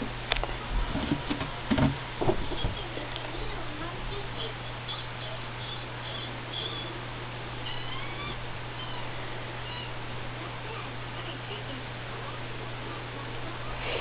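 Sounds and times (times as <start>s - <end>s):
low hum and hiss: 0.0s - 14.0s
guinea pigs squeaking: 4.4s - 10.9s.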